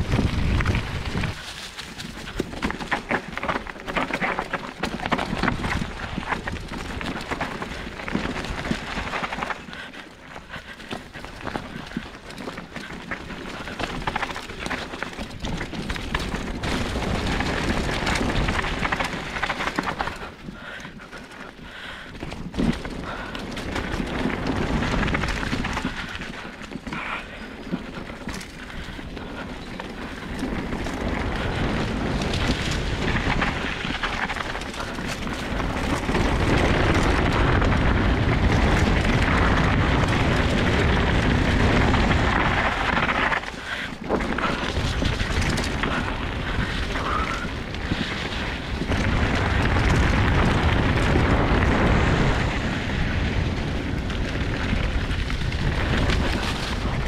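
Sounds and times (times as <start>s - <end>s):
bike tyre noise: 0.0s - 57.0s
wind rush on microphone: 0.0s - 57.0s.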